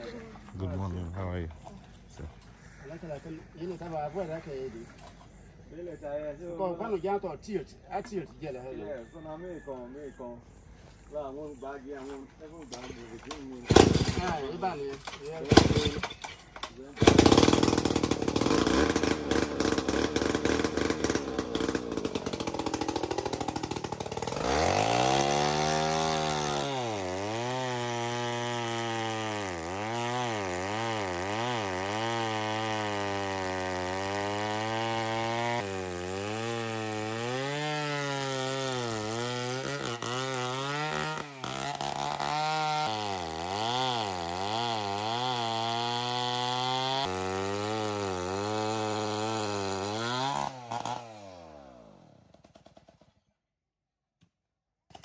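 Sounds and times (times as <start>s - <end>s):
chainsaw idling and cutting wood: 11.0s - 53.5s.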